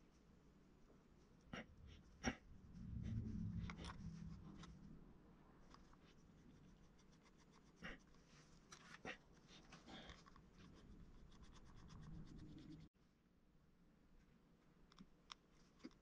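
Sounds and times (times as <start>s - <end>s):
sculpting tool scratching clay: 5.7s - 12.9s.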